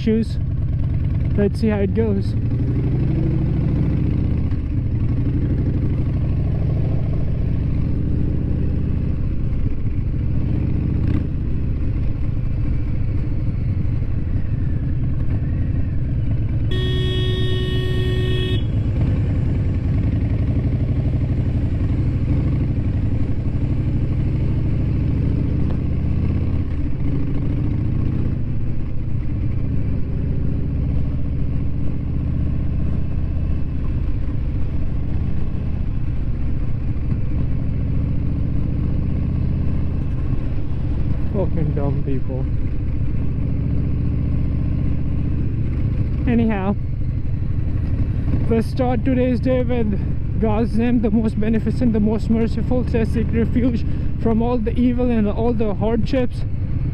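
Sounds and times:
motorcycle engine running: 0.0s - 56.9s
vehicle horn: 16.7s - 19.0s.

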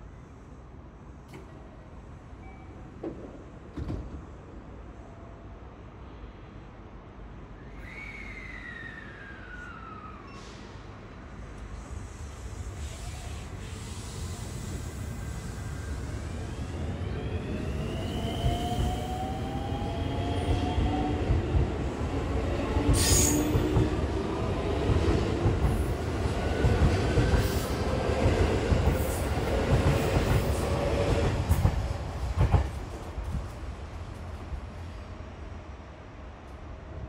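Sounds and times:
high squeal: 7.6s - 10.8s.

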